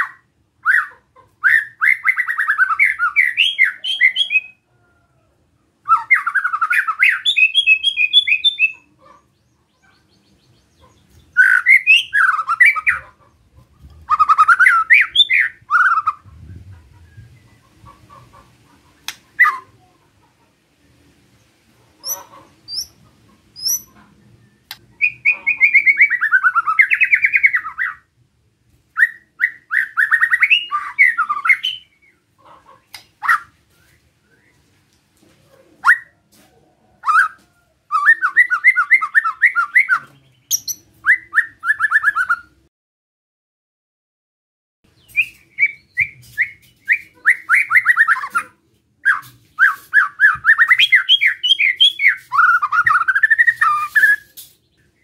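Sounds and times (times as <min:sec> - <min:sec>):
bird harsh repeated calls: 0:00.0 - 0:04.6, 0:05.8 - 0:16.3, 0:17.6 - 0:19.9, 0:22.0 - 0:24.1, 0:24.7 - 0:28.1, 0:29.0 - 0:33.6, 0:37.0 - 0:42.6, 0:45.0 - 0:54.8.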